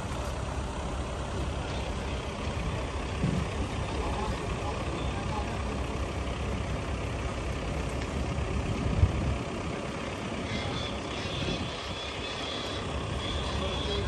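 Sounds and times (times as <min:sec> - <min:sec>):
gusty wind on microphone: 0:11.2 - 0:12.1.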